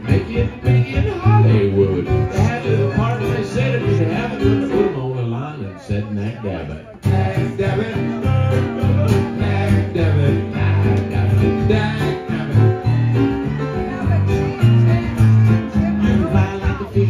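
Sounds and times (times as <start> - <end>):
low bass notes: 0.0 - 5.1, 7.0 - 17.0
acoustic guitar and keyboard song: 0.0 - 17.0.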